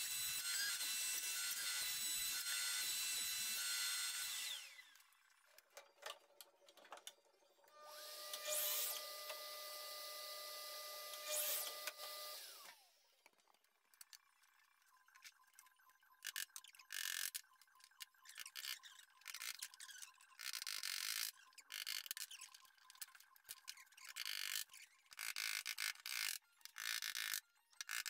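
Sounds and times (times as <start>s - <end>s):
saw blade cutting wood: 0.0s - 4.9s, 7.9s - 9.5s, 10.9s - 12.6s
cordless drill running: 0.0s - 5.2s, 7.8s - 13.0s
mitre saw motor whine: 0.0s - 5.3s, 7.7s - 13.0s.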